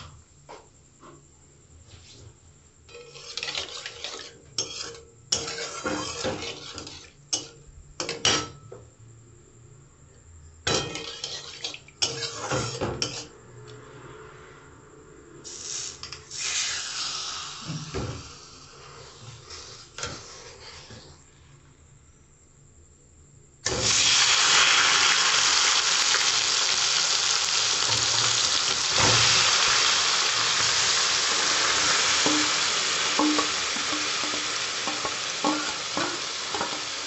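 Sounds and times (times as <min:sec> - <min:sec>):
oil sizzling: 0:02.9 - 0:07.5, 0:23.6 - 0:37.0
metal spatula scraping in wok: 0:02.9 - 0:07.6, 0:10.8 - 0:13.4, 0:18.8 - 0:21.4, 0:30.5 - 0:37.0.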